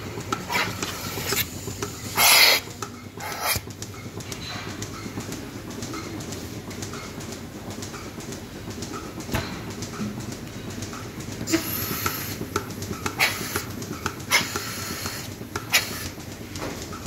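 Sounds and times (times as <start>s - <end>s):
milking vacuum running: 0.0s - 17.0s
air hissing into teat cup: 2.2s - 2.6s, 14.3s - 16.1s.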